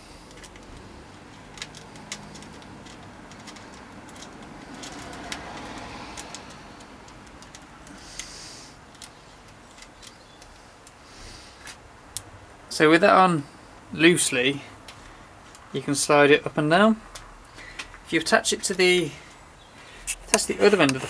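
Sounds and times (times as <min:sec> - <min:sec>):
small metal parts clicking: 0:00.2 - 0:11.0.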